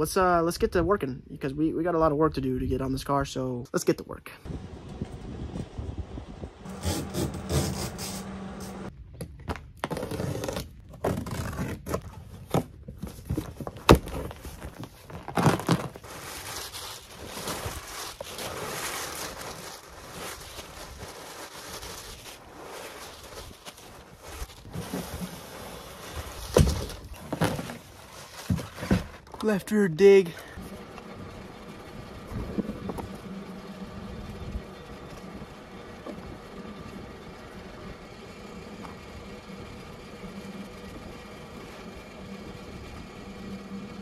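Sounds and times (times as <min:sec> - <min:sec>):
packing paper rustling: 0:11.2 - 0:29.5.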